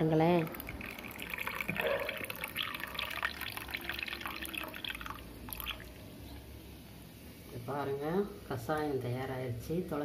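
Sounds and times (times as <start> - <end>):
liquid pouring into glass: 0.4 - 6.4.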